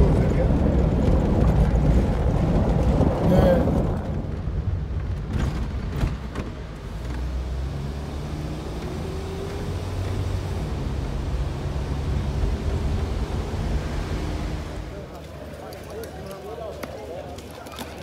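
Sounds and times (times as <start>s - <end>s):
car engine and road noise: 0.0s - 15.5s.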